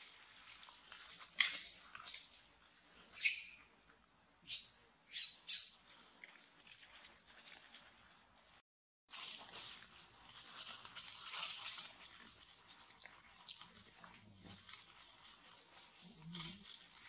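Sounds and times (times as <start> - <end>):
high-pitched chirping calls: 3.1 - 3.6, 4.4 - 5.8, 7.1 - 7.4.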